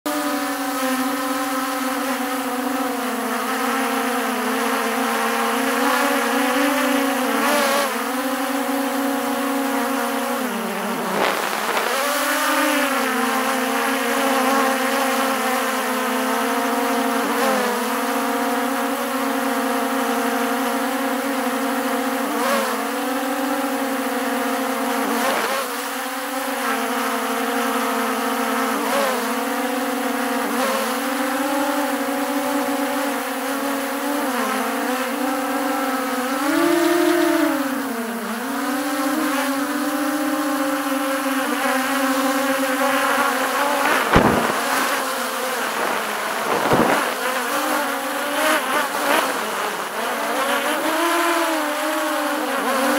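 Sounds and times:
drone propellers whining: 5.9 - 14.4, 39.6 - 50.2.

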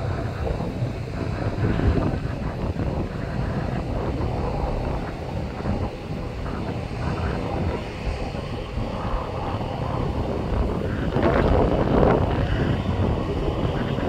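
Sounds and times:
distant jet engine rumble: 0.0 - 14.0
wind buffeting microphone: 0.0 - 14.0.

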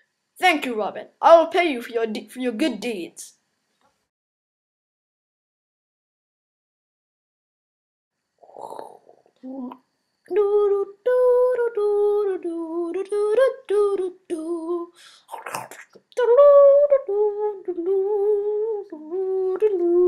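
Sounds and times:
child humming: 8.4 - 12.9
child breathing: 14.9 - 15.3.

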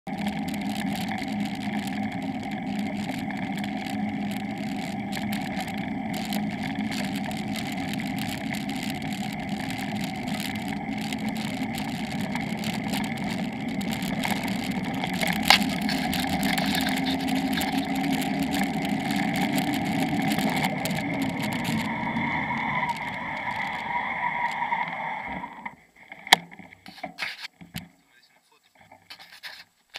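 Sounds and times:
bicycle road noise: 0.0 - 29.9.

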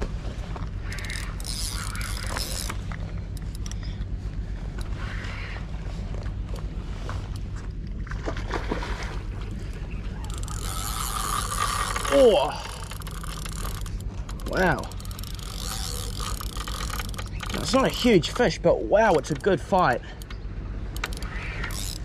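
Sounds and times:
steady low hum: 0.0 - 22.0
spinning reel being cranked: 0.8 - 2.8, 10.2 - 18.4, 21.0 - 22.0
sharp clicks: 12.8 - 22.0.

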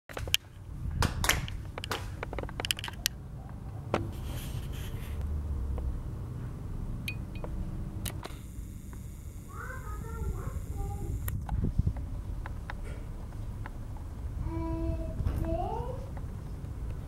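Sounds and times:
sharp clicks and scrapes: 1.8 - 3.2.

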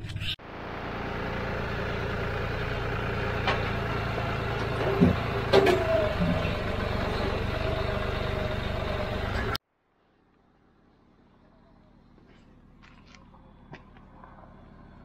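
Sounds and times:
tractor diesel engine running: 0.0 - 9.6, 10.6 - 15.0.

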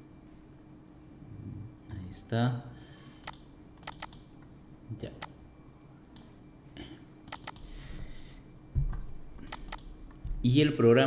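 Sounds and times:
computer mouse button clicking: 3.2 - 4.2, 7.3 - 7.6
low thump: 8.8 - 9.1.

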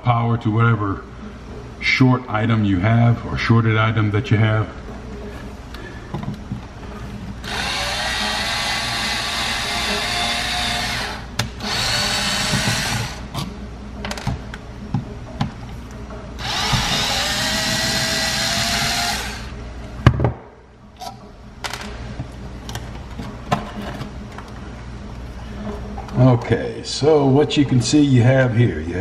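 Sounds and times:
cordless drill whining: 7.4 - 13.2, 16.4 - 19.5.

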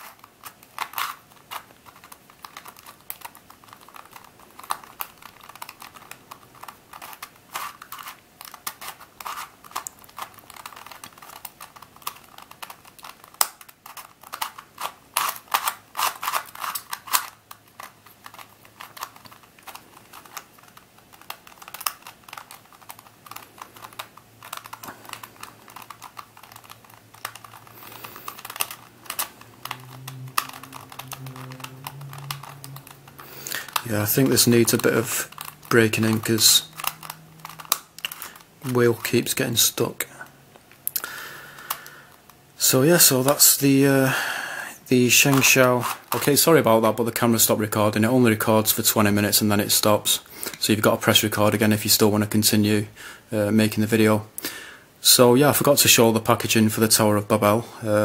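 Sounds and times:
puzzle cube clicking as turned: 0.0 - 39.6, 40.8 - 42.4.

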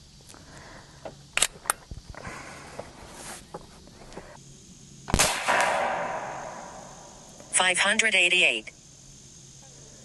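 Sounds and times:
rifle handling clicks: 1.4 - 1.8
air rifle shot crack: 5.1 - 7.1.

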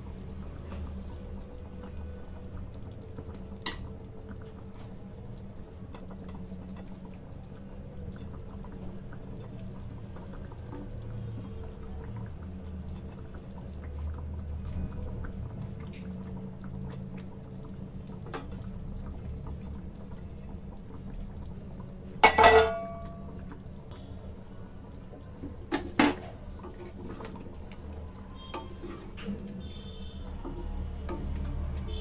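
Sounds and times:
low steady hum: 0.0 - 32.0
metal cookware clanking: 22.2 - 23.2.

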